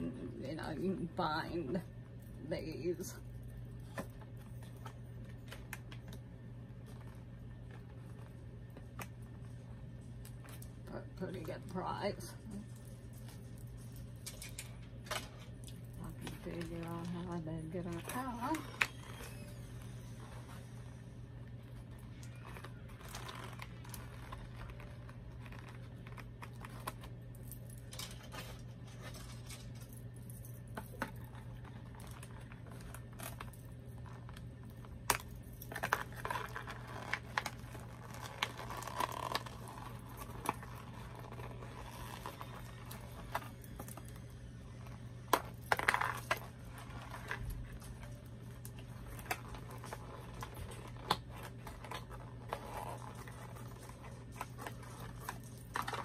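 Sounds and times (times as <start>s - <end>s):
steady low hum: 0.0s - 56.0s
plastic and cardboard crinkling: 2.8s - 56.0s.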